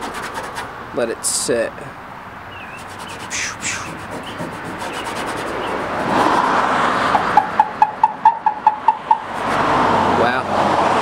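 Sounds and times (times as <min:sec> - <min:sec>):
sponge scrubbing: 0:00.0 - 0:00.7, 0:02.7 - 0:06.6
sponge squeaks: 0:02.6 - 0:06.4.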